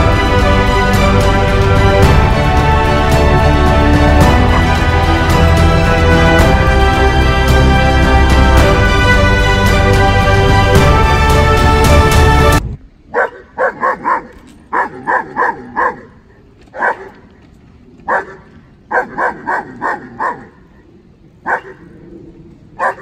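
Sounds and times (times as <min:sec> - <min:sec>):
music: 0:00.0 - 0:12.7
dog barking: 0:13.1 - 0:17.2, 0:18.1 - 0:20.6, 0:21.4 - 0:21.9, 0:22.8 - 0:23.0.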